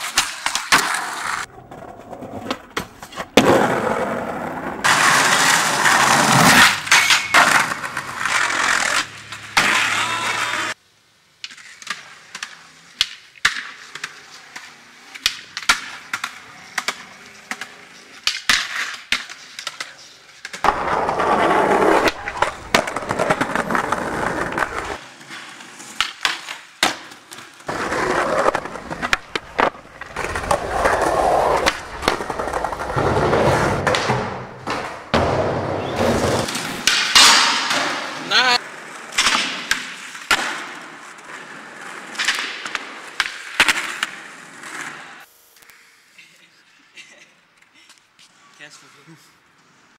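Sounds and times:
skateboard wheels rolling: 0.0 - 10.8, 11.4 - 46.8
skateboard clacks: 11.4 - 45.0.

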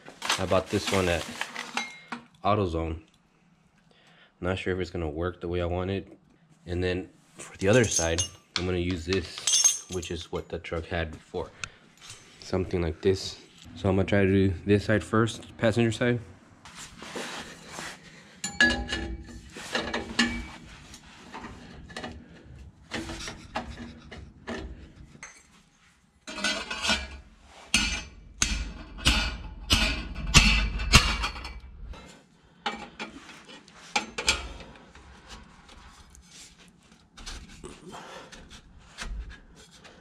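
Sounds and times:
metal clanking and knocking: 18.4 - 20.6, 27.8 - 31.7.

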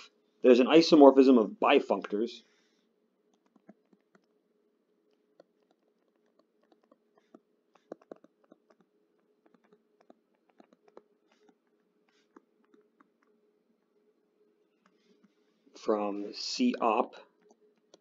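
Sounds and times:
faint steady hum: 0.0 - 18.0
stylus tapping on tablet screen: 5.4 - 13.4, 17.4 - 18.0.

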